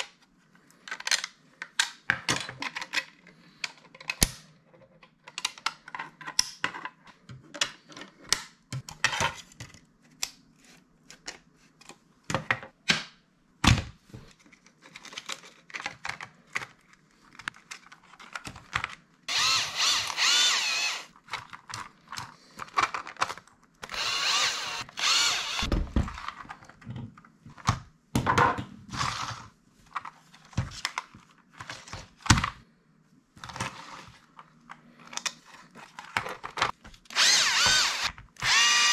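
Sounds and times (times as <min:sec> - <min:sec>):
plastic parts clicking and knocking: 0:00.0 - 0:10.4, 0:11.1 - 0:28.7
cordless drill motor whining: 0:19.3 - 0:21.1, 0:23.8 - 0:25.7, 0:37.1 - 0:38.9.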